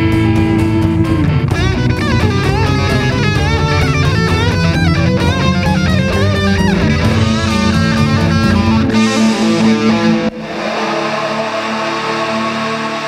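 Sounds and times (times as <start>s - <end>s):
rock theme music with guitar: 0.0s - 13.0s.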